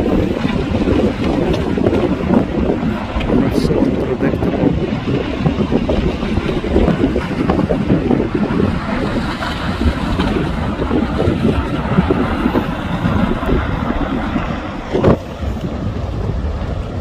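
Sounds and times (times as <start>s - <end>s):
lava spattering: 0.0s - 17.0s
volcanic vent rumbling: 0.0s - 17.0s
wind buffeting microphone: 0.0s - 17.0s.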